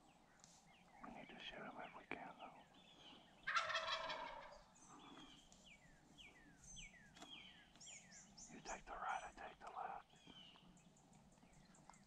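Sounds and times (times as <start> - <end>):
turkey gobbling: 3.4 - 4.7.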